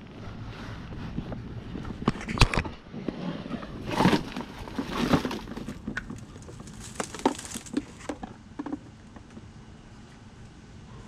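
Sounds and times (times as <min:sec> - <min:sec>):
rustle: 0:00.0 - 0:08.8.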